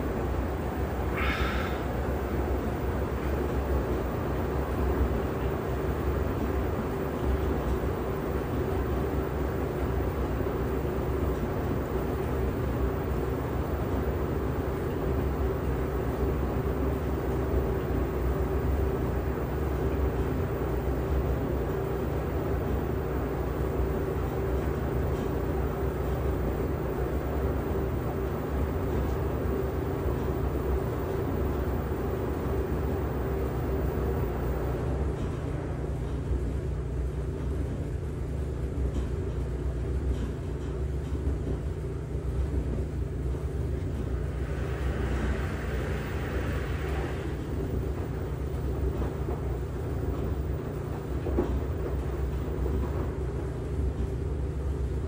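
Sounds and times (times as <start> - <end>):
washing machine running: 0.0 - 55.0.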